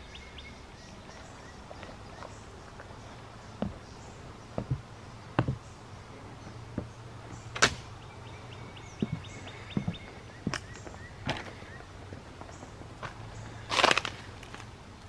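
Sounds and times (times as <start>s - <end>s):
footsteps on wooden boards: 1.6s - 7.4s, 8.5s - 14.6s
footsteps crunching dry leaves: 9.0s - 14.7s.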